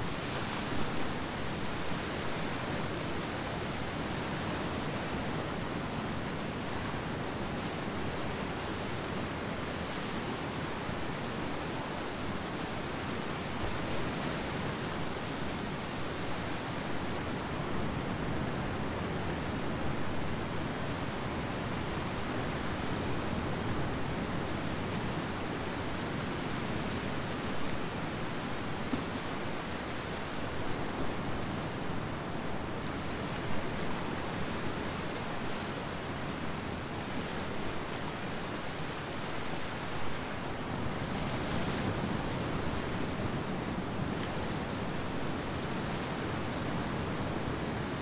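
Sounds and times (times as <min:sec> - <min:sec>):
ocean waves breaking on beach: 0:00.0 - 0:48.0.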